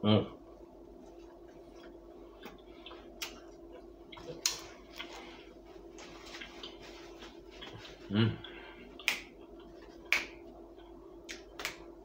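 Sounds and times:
faint steady hum: 0.0 - 12.0
chewing with mouth clicks: 1.8 - 5.2, 6.3 - 6.8
paper napkin rustling: 5.2 - 8.1.

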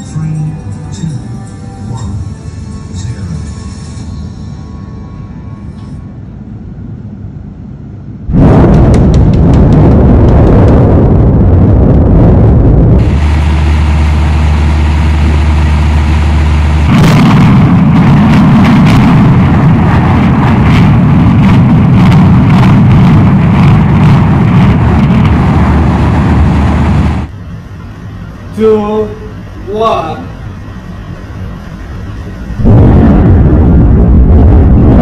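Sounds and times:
low drone: 0.0 - 35.0
sharp crackles: 8.3 - 27.3
building collapsing rumble: 8.3 - 28.6, 29.4 - 35.0.

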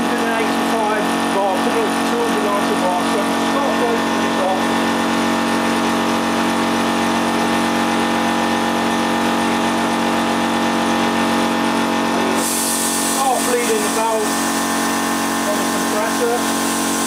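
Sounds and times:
air compressor humming: 0.0 - 17.0
air hiss: 12.3 - 14.8, 15.6 - 17.0.

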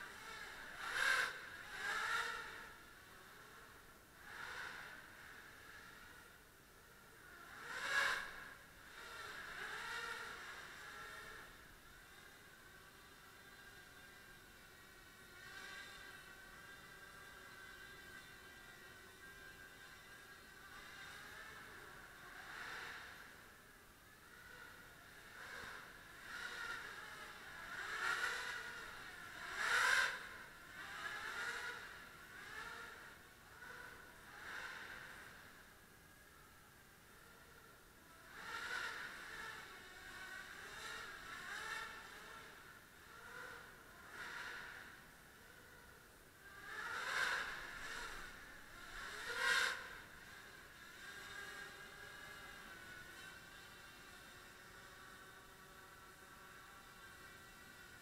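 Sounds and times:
drone propellers whining: 0.0 - 6.4, 7.0 - 37.7, 38.3 - 58.0.

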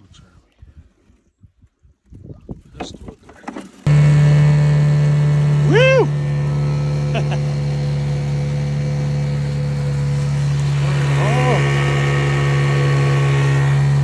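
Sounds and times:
outboard motor running: 2.8 - 14.0.

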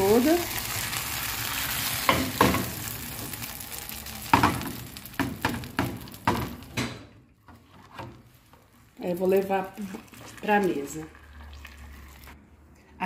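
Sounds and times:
caramel sizzling and bubbling: 0.0 - 12.4
pan knocking on stove grate: 4.3 - 7.0.

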